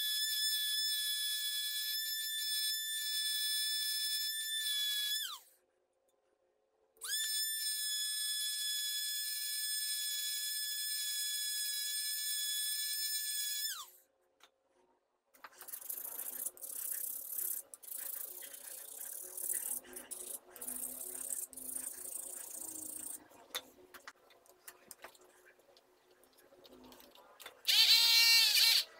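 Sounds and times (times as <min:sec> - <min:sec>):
scratching and rubbing: 0:15.4 - 0:25.6
rotary tool grinding metal: 0:15.6 - 0:23.2.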